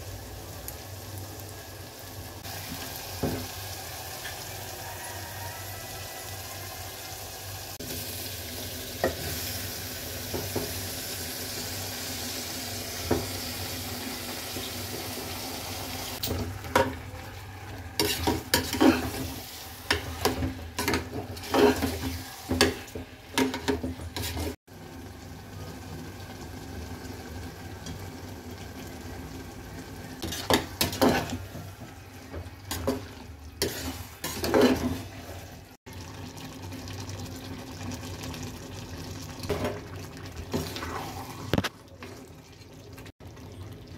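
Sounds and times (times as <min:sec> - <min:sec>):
food sizzling in oil: 0:00.0 - 0:43.9
spatula scraping a pot: 0:18.0 - 0:24.6, 0:30.2 - 0:31.5, 0:32.7 - 0:35.5.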